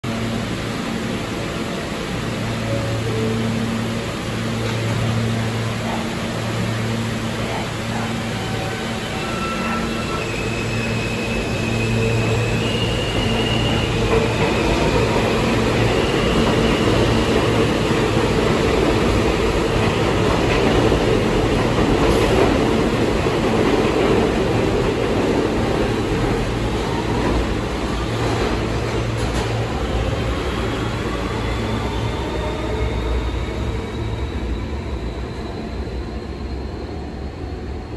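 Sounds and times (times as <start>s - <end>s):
train cars rumbling on rails: 0.0s - 37.9s.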